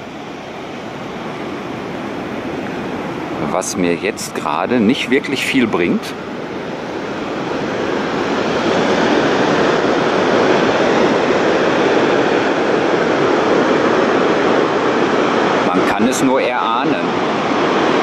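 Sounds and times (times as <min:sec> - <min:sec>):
waterfall roaring: 0:00.0 - 0:18.0.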